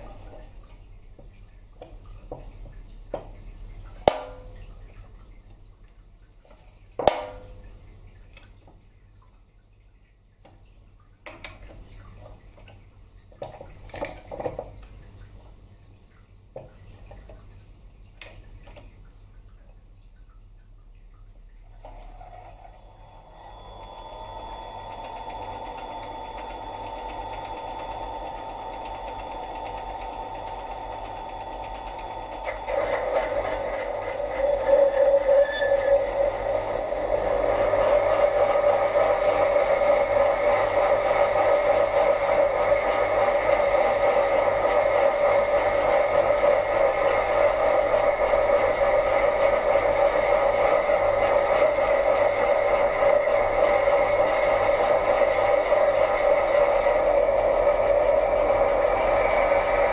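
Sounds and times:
lathe motor and gear whine: 22.0s - 59.9s.

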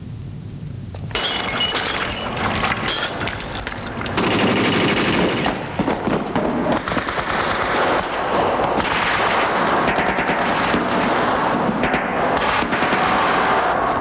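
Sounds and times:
rapid machine-gun fire: 4.2s - 13.8s.

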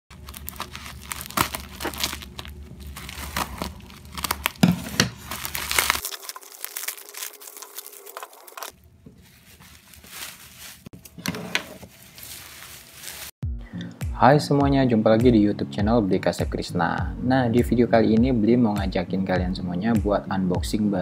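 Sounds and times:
scissors cutting plastic bag: 0.1s - 8.8s
bubble wrap handled: 0.1s - 13.4s
plastic crinkling and tearing: 0.1s - 13.4s.

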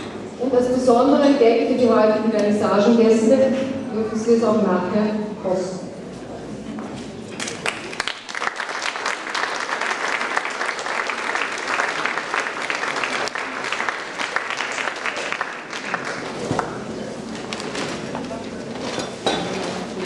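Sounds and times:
audience applauding: 7.4s - 16.5s.

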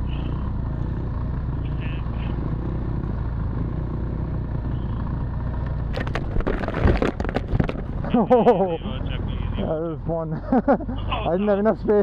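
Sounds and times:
motorcycle engine running: 0.0s - 12.0s
knocks and scrapes: 5.9s - 8.2s.

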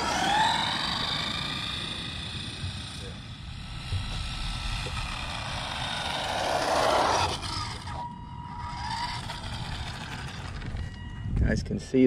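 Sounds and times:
electric motor whine: 0.0s - 11.4s.

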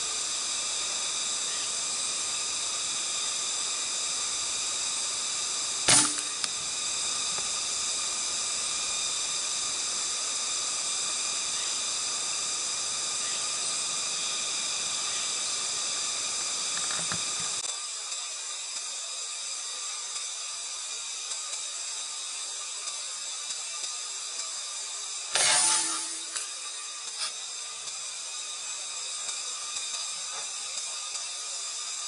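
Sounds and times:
insects buzzing drone: 0.0s - 32.0s
loud sharp crack: 5.9s - 6.5s.

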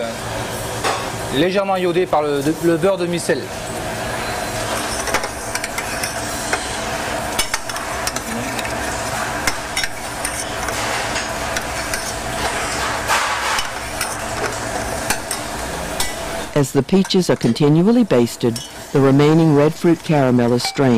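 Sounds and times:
steady hum: 0.0s - 20.9s
metal spoon scraping saucepan: 4.5s - 6.7s, 7.4s - 17.6s.

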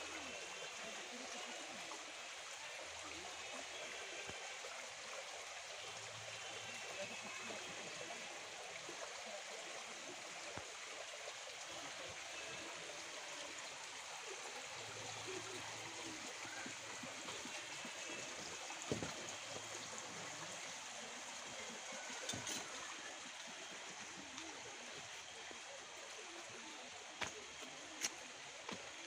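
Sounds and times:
stream flowing over rocks: 0.0s - 29.0s.

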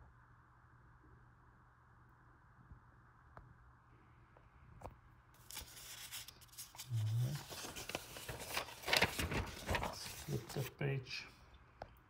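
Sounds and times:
paper pages rustling: 5.4s - 10.8s.

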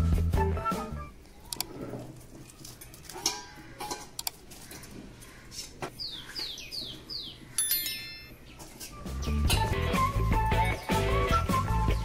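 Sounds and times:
bright ringing chime: 7.6s - 8.5s.

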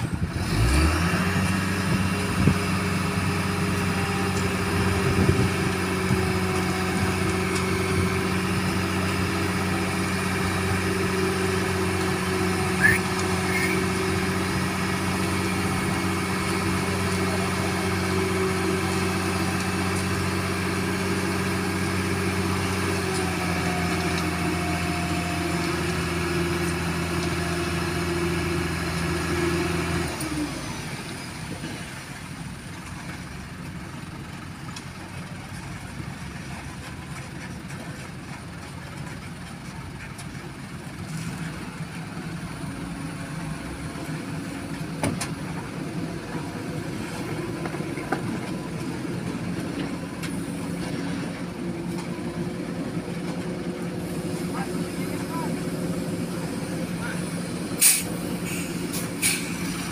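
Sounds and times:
diesel engine running: 0.0s - 59.9s
short high chirp: 12.8s - 13.8s.

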